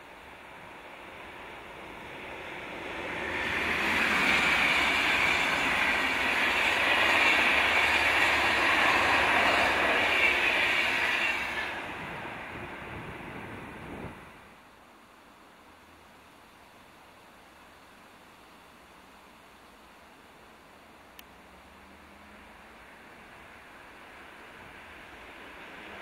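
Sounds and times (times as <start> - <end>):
train wheels rushing on rail: 0.0 - 14.6, 22.3 - 26.0.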